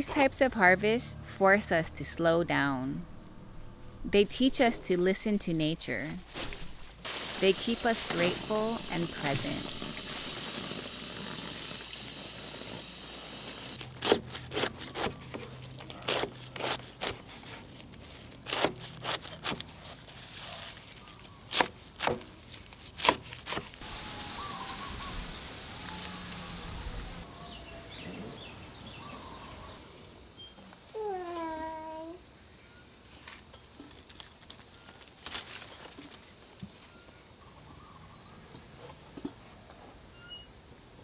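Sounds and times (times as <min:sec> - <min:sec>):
tap water running in sink: 0:07.2 - 0:13.8.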